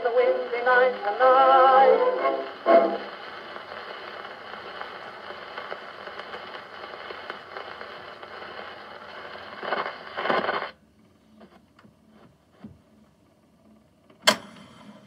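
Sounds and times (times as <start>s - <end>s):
record surface hiss and crackle: 0.0s - 15.0s
needle scratching on record: 0.2s - 10.8s.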